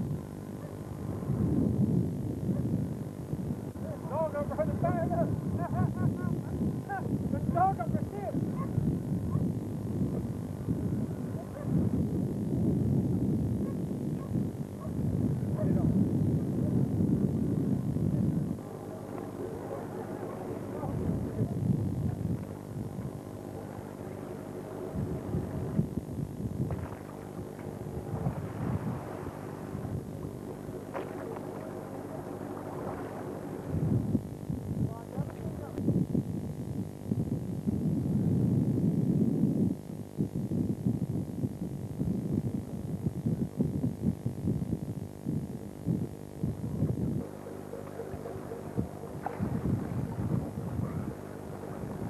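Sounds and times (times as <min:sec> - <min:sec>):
boat noise: 0:00.0 - 0:12.4, 0:13.6 - 0:35.8, 0:46.3 - 0:52.0
wind buffeting microphone: 0:00.0 - 0:52.0
waves: 0:18.6 - 0:25.9, 0:26.7 - 0:34.1, 0:47.3 - 0:52.0.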